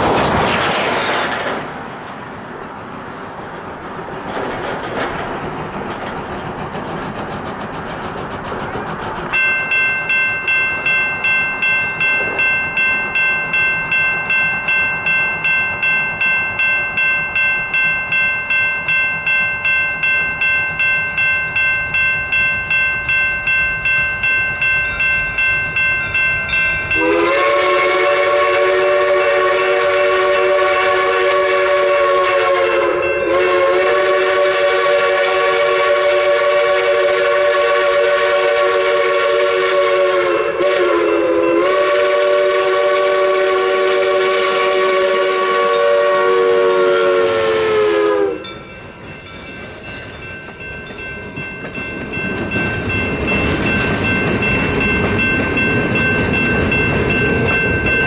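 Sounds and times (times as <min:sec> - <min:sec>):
bell ringing rapidly: 0:09.3 - 0:27.0
steam whistle chime blast: 0:26.5 - 0:48.8.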